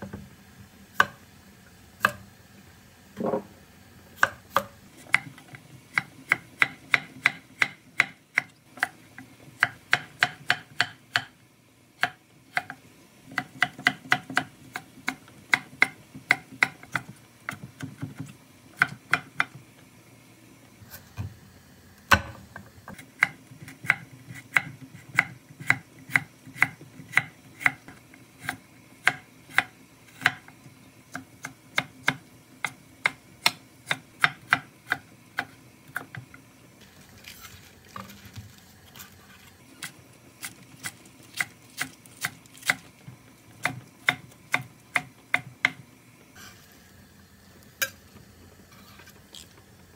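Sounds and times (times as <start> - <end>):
knife chopping on cutting board: 4.2 - 9.0, 12.0 - 19.6, 23.0 - 30.5, 31.1 - 36.3.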